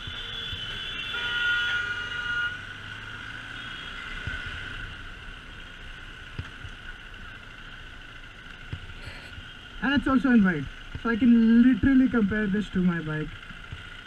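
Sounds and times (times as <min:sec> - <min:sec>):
vehicle horn honking: 0:00.0 - 0:02.7, 0:03.5 - 0:04.2
motorcycle engine: 0:00.0 - 0:14.0
wind: 0:00.0 - 0:14.0.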